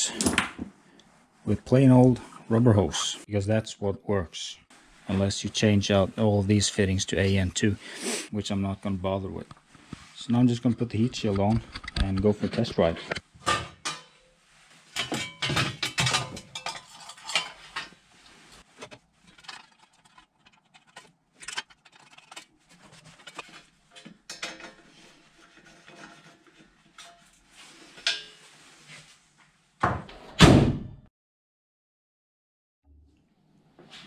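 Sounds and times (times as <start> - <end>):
sheet metal clinking and clattering: 13.1 - 14.3, 15.0 - 18.0, 23.0 - 28.4.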